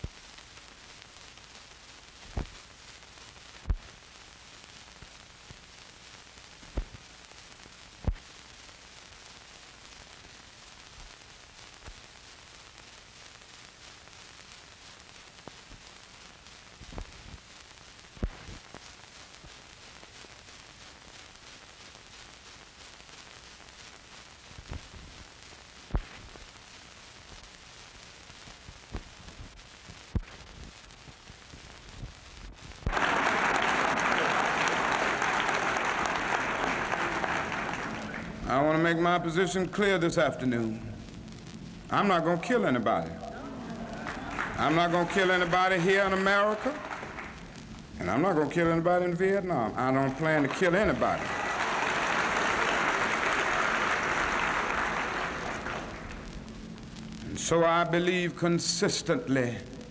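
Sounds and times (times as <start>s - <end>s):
film soundtrack hiss and static: 0.0s - 59.9s
sharp clicks and pops: 6.6s - 7.1s, 28.3s - 33.0s.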